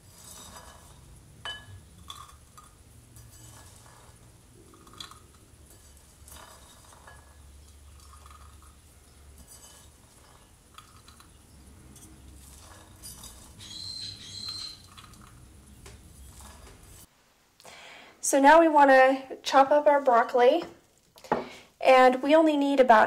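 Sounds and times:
glassy rattle: 0.1 - 17.1
peas tapping on glass: 1.4 - 2.8.

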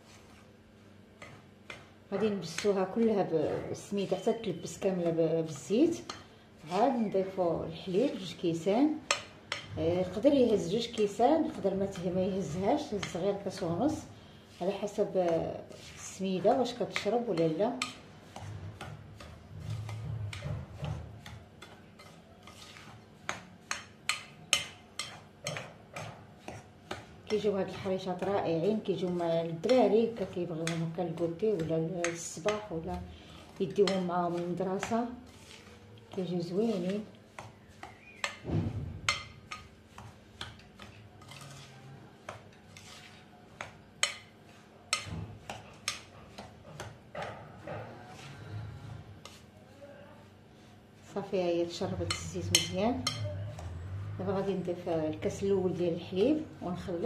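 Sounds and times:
hand rubbing powder in a bowl: 0.0 - 38.4, 39.1 - 47.1, 47.8 - 57.0.

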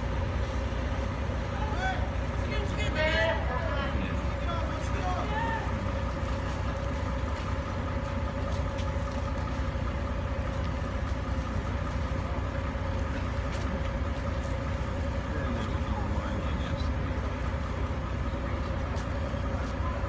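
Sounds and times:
diesel engines droning: 0.0 - 20.0.

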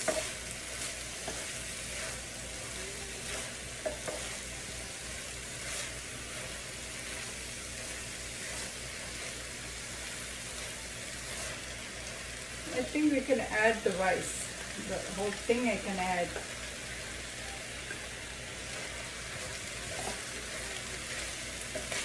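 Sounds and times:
wooden spatula scraping a pan: 0.0 - 4.7, 5.4 - 9.5, 10.5 - 12.1, 18.7 - 22.0
rice sizzling in a skillet: 0.0 - 22.0.

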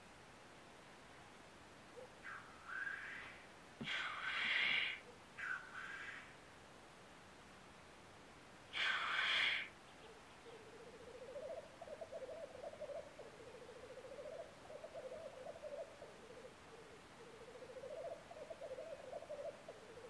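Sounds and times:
grouse hissing sneeze call: 2.2 - 6.4, 8.7 - 9.8.

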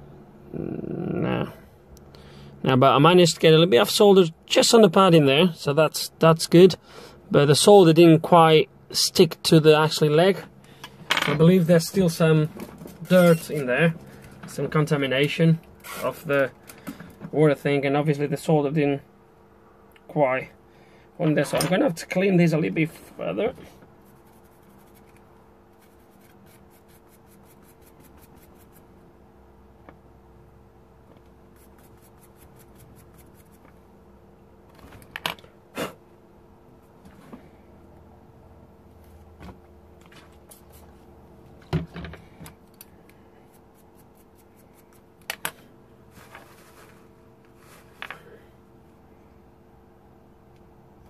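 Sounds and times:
faint steady hum: 0.0 - 51.0
pen scratching circuit board: 24.0 - 25.2.

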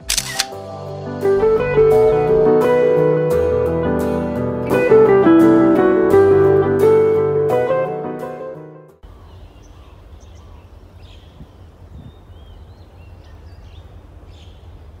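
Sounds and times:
guitar music: 0.0 - 9.0
bird chirps: 9.0 - 15.0
wind rumble on microphone: 11.1 - 13.7.

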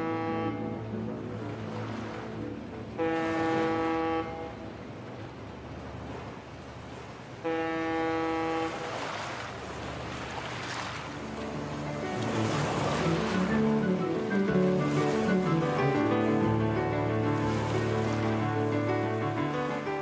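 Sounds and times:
ship's horn blasts: 0.0 - 2.2, 2.8 - 4.9, 7.4 - 9.4, 12.2 - 20.0
water washing: 8.2 - 20.0.

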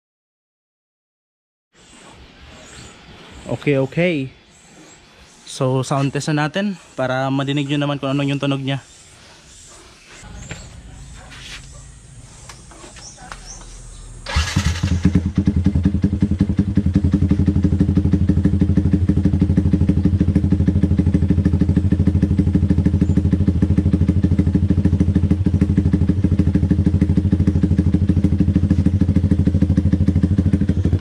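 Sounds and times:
motorcycle engine idling: 7.0 - 31.0.

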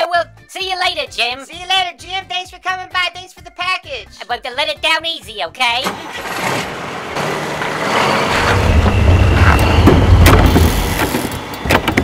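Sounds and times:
truck engine rumbling: 5.7 - 12.0.

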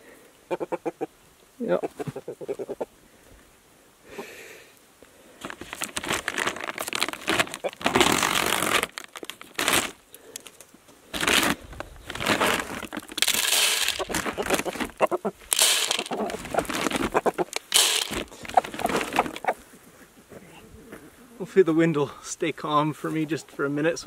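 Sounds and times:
feed bag rustling and crunching: 5.4 - 19.6.

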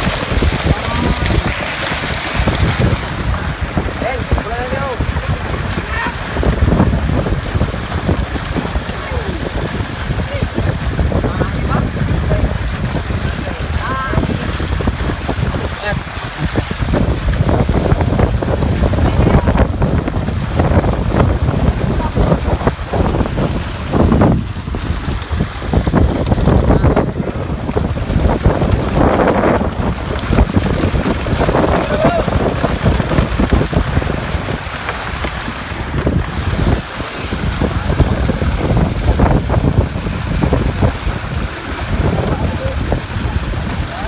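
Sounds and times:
water splashing from thrashing fish: 0.0 - 44.0
wind on microphone: 0.0 - 44.0.

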